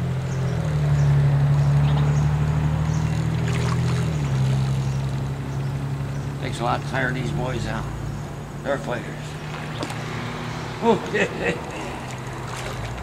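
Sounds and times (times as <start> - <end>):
motor engine drone: 0.0 - 13.0.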